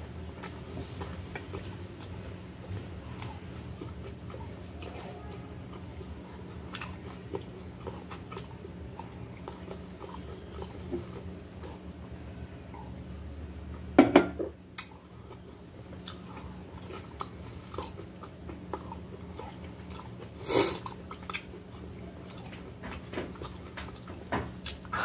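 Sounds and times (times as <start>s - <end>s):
close-up chewing with crunches: 0.0s - 12.1s, 14.7s - 25.0s
steady low hum: 0.0s - 25.0s.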